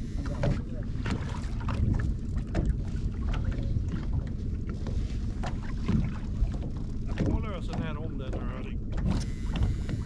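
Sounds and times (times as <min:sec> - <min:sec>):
boat engine rumble: 0:00.0 - 0:10.0
gear knocking and clicking: 0:06.6 - 0:10.0.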